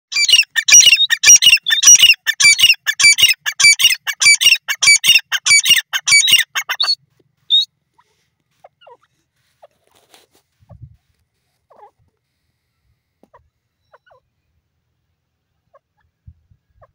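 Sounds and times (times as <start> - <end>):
francolin harsh calls: 0.1 - 9.8.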